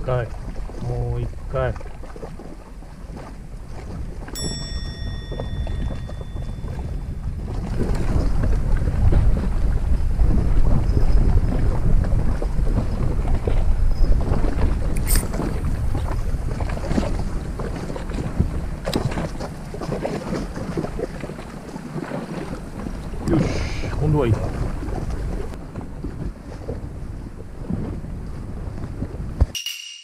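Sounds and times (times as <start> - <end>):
wind buffeting microphone: 0.0 - 29.5
clear ringing tone: 4.4 - 7.8, 29.6 - 30.0
sharp click: 15.0 - 15.6.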